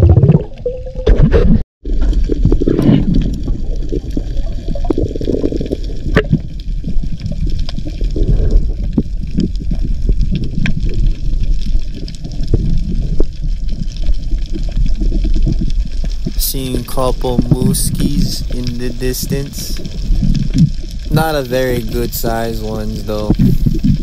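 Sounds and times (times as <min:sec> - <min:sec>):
muffled underwater rushing: 0:00.0 - 0:24.0
small underwater clicks: 0:02.0 - 0:16.4.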